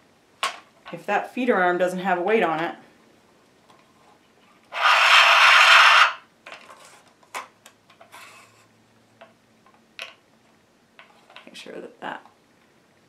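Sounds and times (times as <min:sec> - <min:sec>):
plastic rubbing scrape: 0:03.9 - 0:07.1, 0:08.1 - 0:08.7.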